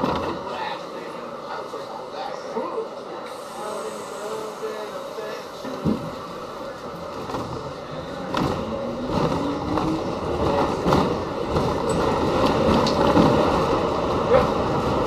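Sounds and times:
subway train wheel and rail noise: 0.0s - 15.0s
rail joint clacks: 8.2s - 15.0s.

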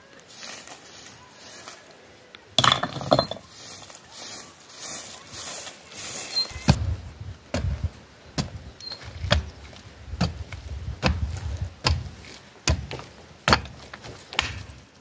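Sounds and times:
broom sweeping stony earth: 0.0s - 2.3s, 3.4s - 15.0s
hoe striking hard ground: 2.6s - 3.5s, 10.2s - 14.8s.

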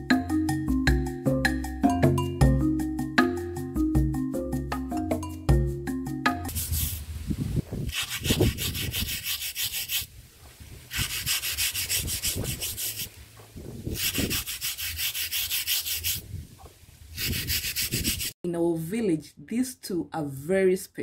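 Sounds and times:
scrubber rubbing grinding stone: 7.9s - 10.1s, 10.9s - 13.2s, 13.9s - 16.2s, 17.2s - 18.4s.

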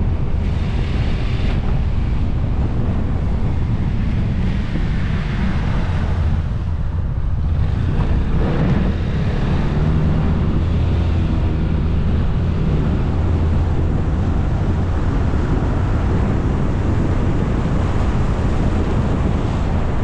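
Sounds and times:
motorcycle engine hum: 0.0s - 20.0s
wind rushing over microphone: 0.0s - 20.0s.

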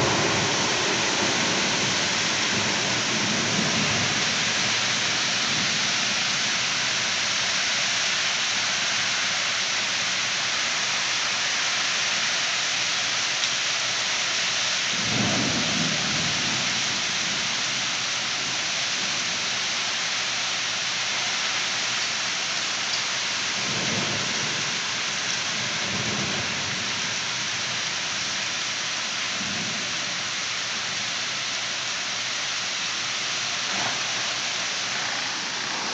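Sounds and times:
heavy rain pouring: 0.0s - 35.9s
thunder rolling: 33.7s - 35.9s.

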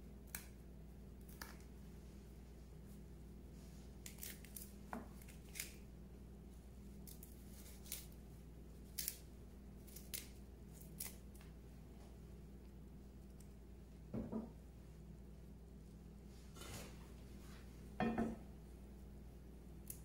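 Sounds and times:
steady low hum: 0.0s - 20.0s
plant stalks snapping by hand: 4.0s - 5.8s, 8.9s - 9.2s, 9.9s - 11.5s.

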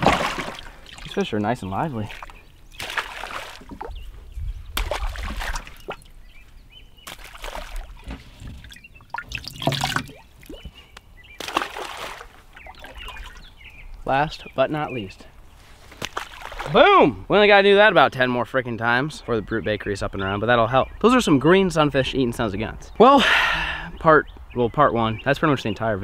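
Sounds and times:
fish splashing into water: 0.0s - 1.2s, 2.1s - 4.0s, 4.8s - 6.2s, 7.0s - 8.0s, 8.8s - 10.6s, 11.4s - 13.4s, 16.0s - 16.8s
water sloshing in a cooler: 0.0s - 4.1s, 4.8s - 6.4s, 7.0s - 10.8s, 11.4s - 13.5s.

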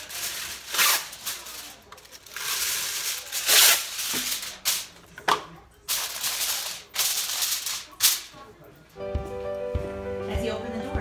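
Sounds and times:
aluminium foil tearing and crinkling: 0.0s - 5.0s, 5.9s - 8.4s.

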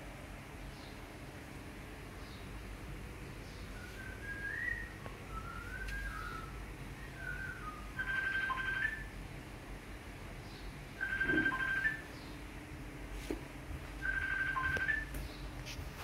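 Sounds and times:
thin whistled notes: 3.8s - 6.5s.

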